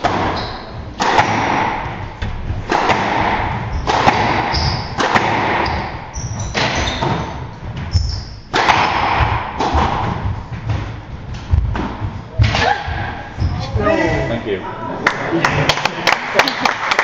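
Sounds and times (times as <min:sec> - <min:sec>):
squash ball hitting rackets and walls: 0:00.0 - 0:13.8
shoes squeaking on wooden floor: 0:00.2 - 0:01.0, 0:03.6 - 0:05.0, 0:05.6 - 0:08.5, 0:09.2 - 0:14.3.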